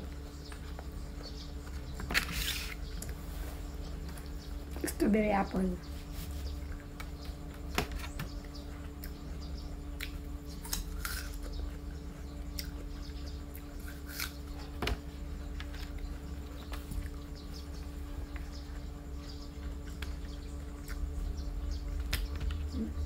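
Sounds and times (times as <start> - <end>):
steady low hum: 0.0 - 23.0
apple crunching while chewing: 9.9 - 14.8.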